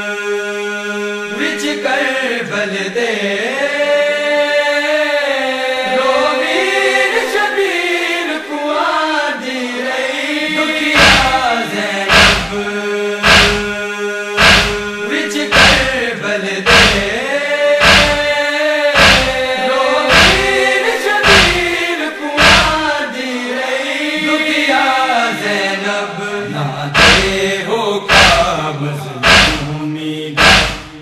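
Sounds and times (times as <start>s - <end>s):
men singing a lament: 0.0s - 31.0s
hands striking chests: 11.0s - 11.4s, 12.1s - 12.6s, 13.2s - 13.7s, 14.4s - 14.9s, 15.5s - 16.0s, 16.7s - 17.1s, 17.8s - 18.3s, 19.0s - 19.4s, 20.1s - 20.5s, 21.2s - 21.7s, 22.4s - 22.8s, 27.0s - 27.4s, 28.1s - 28.4s, 29.2s - 29.6s, 30.4s - 31.0s.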